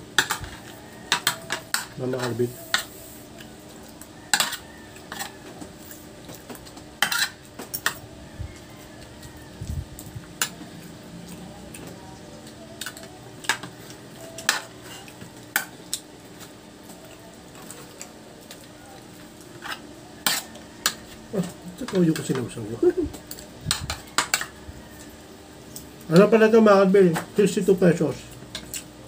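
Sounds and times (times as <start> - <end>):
faint steady hum: 0.0 - 29.0
cutlery clinking on metal plates: 0.2 - 2.9, 4.3 - 8.0, 12.8 - 15.8, 19.6 - 22.6, 23.3 - 24.6.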